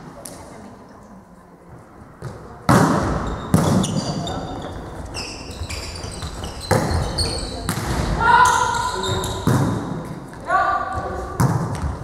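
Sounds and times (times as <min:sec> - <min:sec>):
sports shoes squeaking on floor: 0:02.2 - 0:10.1.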